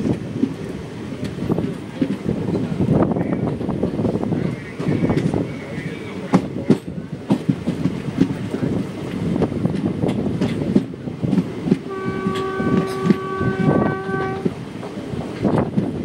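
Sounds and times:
train wheels clattering over rail joints: 0.0 - 16.0
train horn: 11.8 - 14.5.

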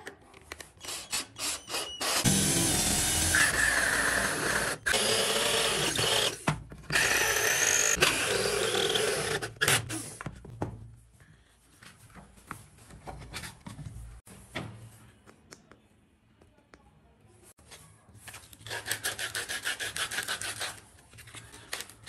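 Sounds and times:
drill hole saw cutting wood: 0.8 - 9.8.

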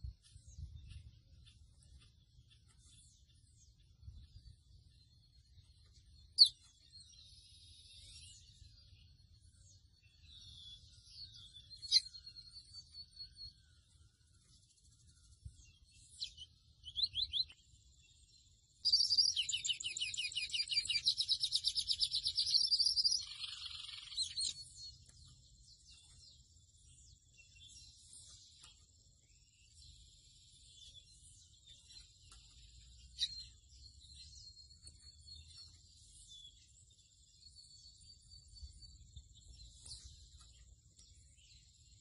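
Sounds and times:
bird chirps and whistles: 6.4 - 6.7, 18.8 - 24.7.

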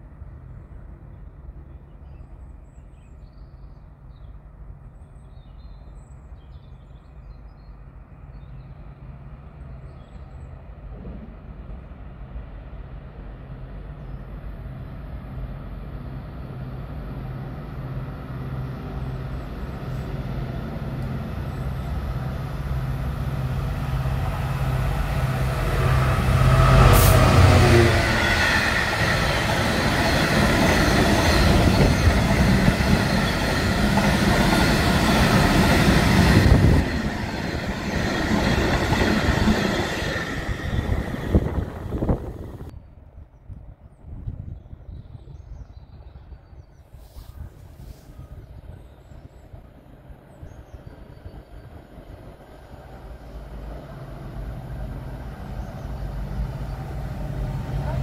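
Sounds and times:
diesel locomotive engine droning: 7.8 - 42.8, 47.8 - 58.0.

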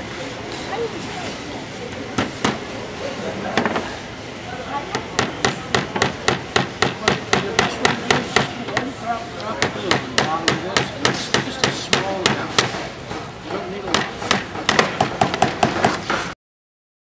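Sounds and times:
hammers driving nails into wood: 5.2 - 8.9, 9.6 - 12.8, 13.9 - 16.0.

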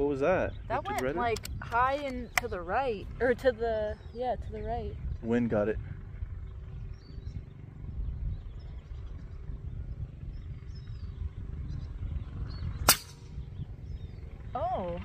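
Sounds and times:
wind buffeting microphone: 0.0 - 15.0
air rifle shot crack: 12.8 - 13.4.

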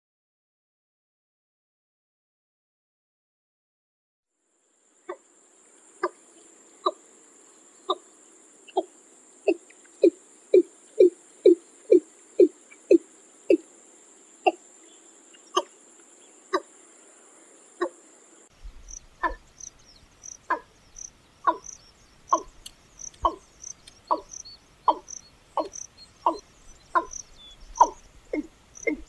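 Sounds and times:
bird calling short repeated notes: 19.2 - 19.5, 20.5 - 29.0.

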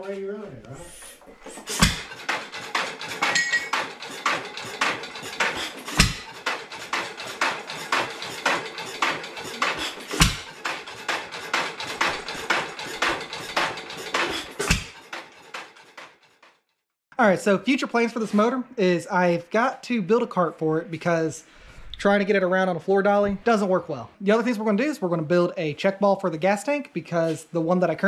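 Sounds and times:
engine mechanical clatter: 1.2 - 16.7.

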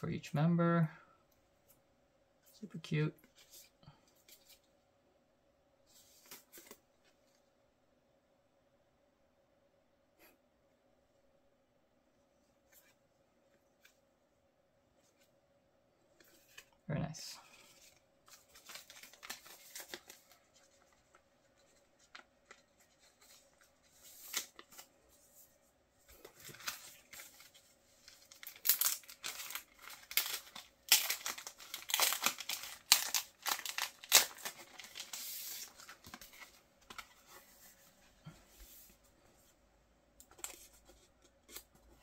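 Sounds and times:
paper wrapping rustling and crinkling: 17.4 - 39.0.

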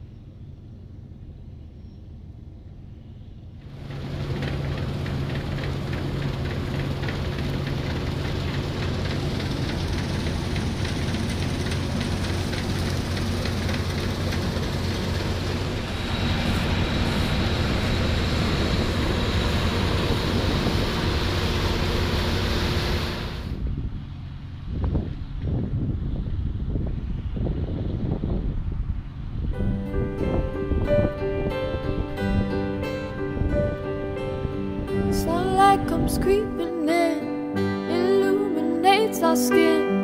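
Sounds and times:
diesel engine hum: 0.0 - 40.0
harvester header rattling: 3.7 - 21.9.

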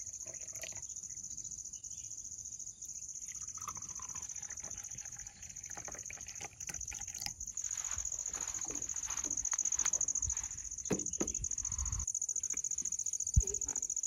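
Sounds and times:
hot drink pouring into cup: 0.0 - 0.9, 3.2 - 7.5.

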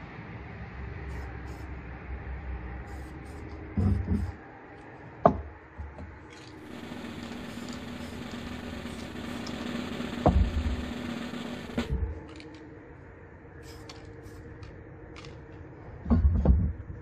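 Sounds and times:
spray paint cans hissing: 1.1 - 1.7, 2.8 - 4.4, 6.5 - 10.2, 13.6 - 15.3.

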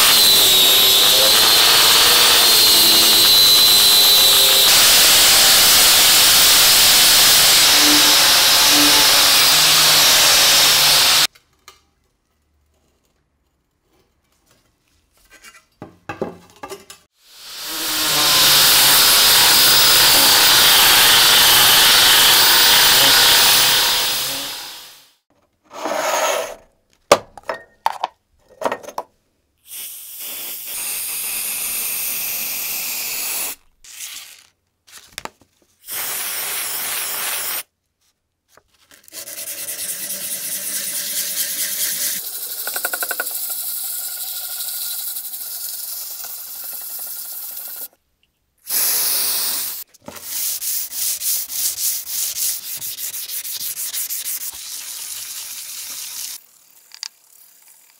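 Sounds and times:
loud steady hiss: 17.2 - 25.1
rubbing or sanding: 50.2 - 55.6.

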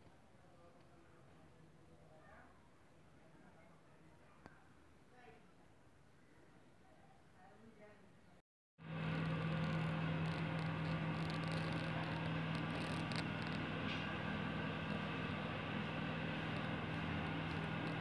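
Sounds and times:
machine hum: 8.8 - 18.0.

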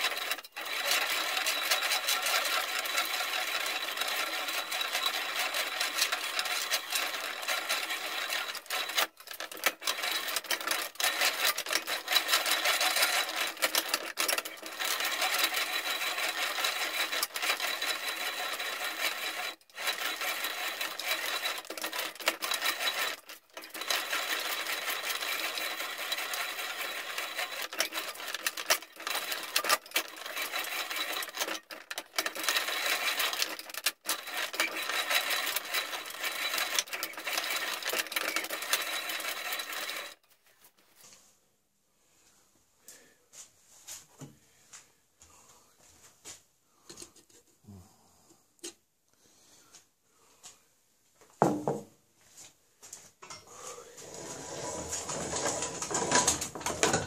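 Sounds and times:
reamer rasping through steel: 0.0 - 40.6.

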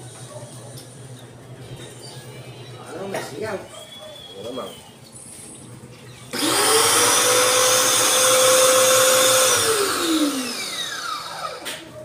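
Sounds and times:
pressure washer motor whining: 6.3 - 11.9.

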